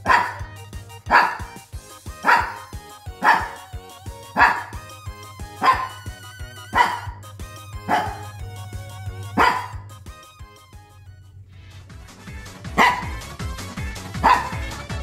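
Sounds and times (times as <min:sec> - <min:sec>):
dog barking: 0:00.0 - 0:00.5, 0:01.1 - 0:01.6, 0:02.2 - 0:03.7, 0:04.3 - 0:04.9, 0:05.6 - 0:07.2, 0:07.8 - 0:08.4, 0:09.3 - 0:09.9, 0:12.7 - 0:13.3, 0:14.2 - 0:14.8
background music: 0:00.0 - 0:15.0.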